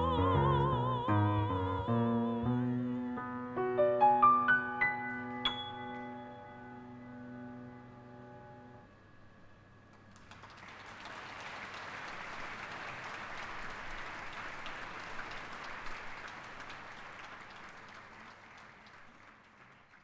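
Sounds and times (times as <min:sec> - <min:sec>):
audience applauding: 0:09.9 - 0:20.0.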